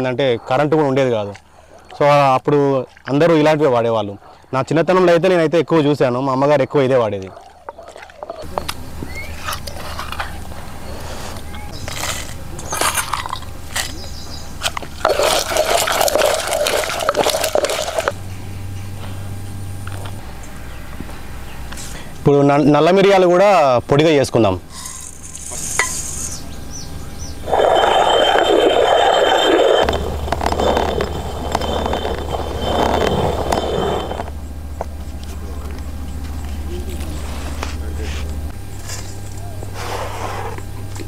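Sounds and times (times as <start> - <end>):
stone quern grinding: 14.6 - 18.2, 24.7 - 26.4, 27.4 - 34.4.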